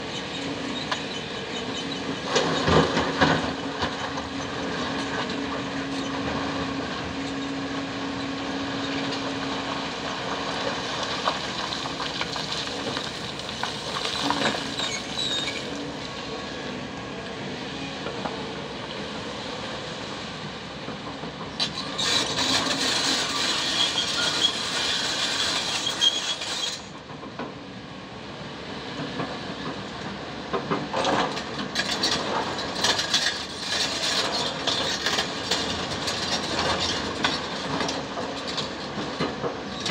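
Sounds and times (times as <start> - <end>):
excavator engine under load: 0.0 - 39.9
bucket scraping through stones: 11.2 - 16.0.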